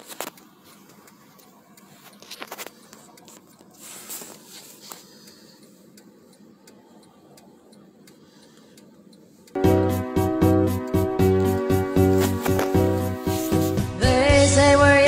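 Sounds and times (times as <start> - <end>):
phone handling clicks and rustles: 0.0 - 5.2, 11.3 - 13.4.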